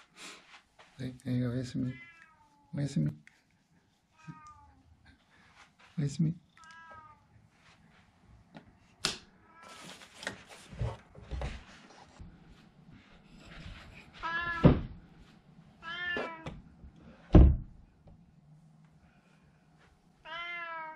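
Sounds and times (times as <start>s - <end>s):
cat meowing: 2.0s - 2.7s, 4.2s - 4.8s, 6.5s - 7.3s, 14.2s - 14.7s, 15.8s - 16.5s, 20.2s - 20.9s
loud thump: 17.3s - 17.7s.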